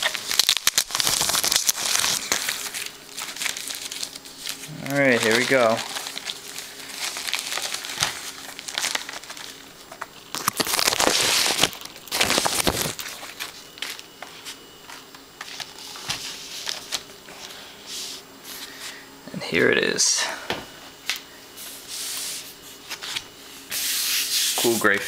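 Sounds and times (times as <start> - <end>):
plastic wrap crinkling: 0.0 - 17.1.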